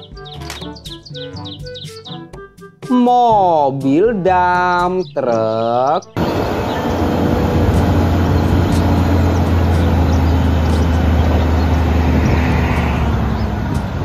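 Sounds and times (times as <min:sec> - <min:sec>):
diesel truck engine running: 0:06.2 - 0:14.0.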